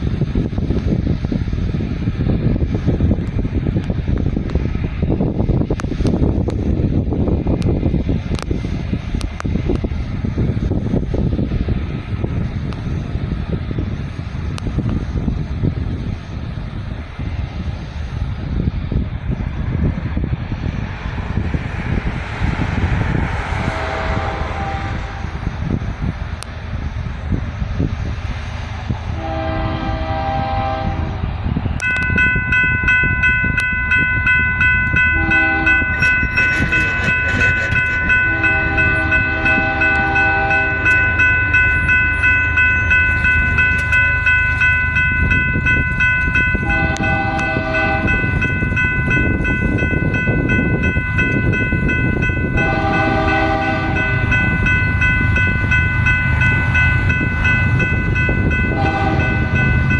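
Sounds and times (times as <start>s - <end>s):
locomotive air horn blasts: 23.6s - 25.4s, 29.2s - 31.2s, 35.0s - 42.6s, 46.5s - 48.5s, 52.5s - 54.5s, 58.5s - 59.9s
crossing warning bell ringing: 31.8s - 59.9s.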